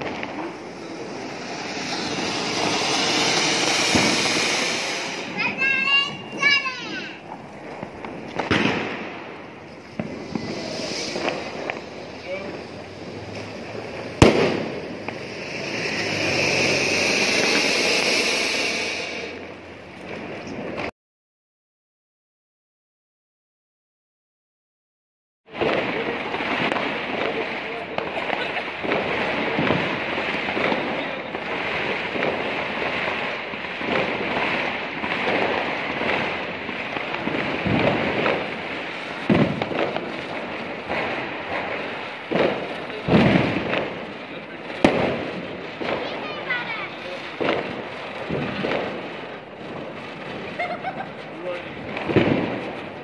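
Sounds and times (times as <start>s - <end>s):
firework fountain hissing: 0.0s - 20.9s, 25.5s - 53.0s.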